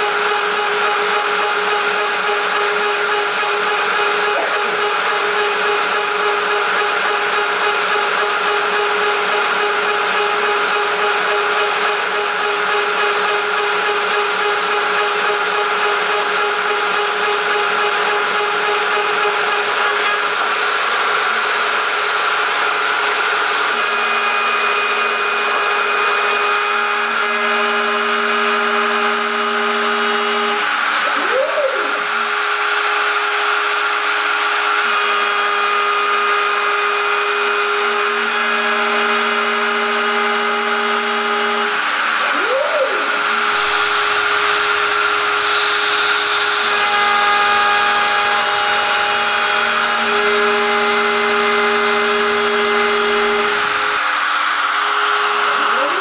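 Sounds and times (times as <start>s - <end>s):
milling cutter cutting metal: 0.0s - 56.0s
router spindle whining: 0.0s - 56.0s.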